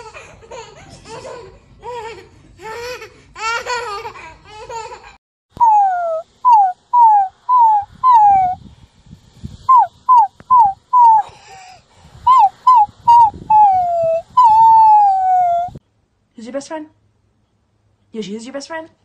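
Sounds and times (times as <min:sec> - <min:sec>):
puppy howling and yipping: 0:05.6 - 0:08.6, 0:09.7 - 0:11.3, 0:12.3 - 0:15.8.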